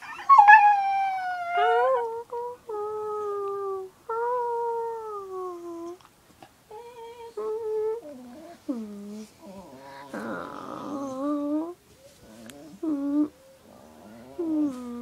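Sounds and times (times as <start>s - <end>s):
dog howling whines: 0.2s - 2.1s.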